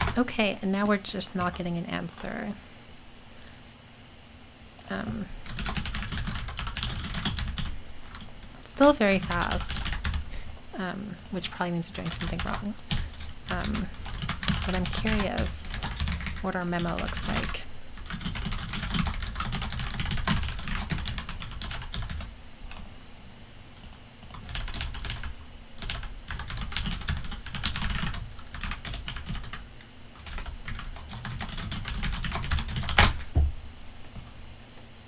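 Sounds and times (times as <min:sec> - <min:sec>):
typing on computer keyboard: 0:04.8 - 0:08.2, 0:12.0 - 0:22.8, 0:23.8 - 0:29.6, 0:30.2 - 0:33.2.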